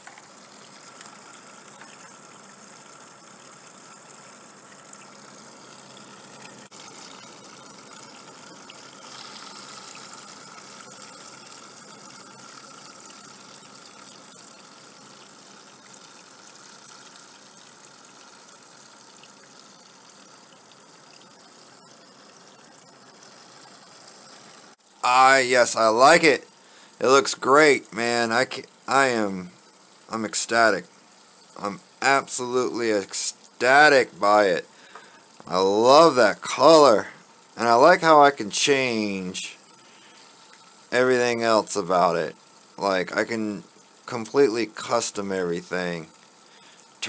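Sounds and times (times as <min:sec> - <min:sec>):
water-cooling pump churning: 0:00.0 - 0:21.9, 0:24.2 - 0:47.0
faint steady whine: 0:00.0 - 0:47.0.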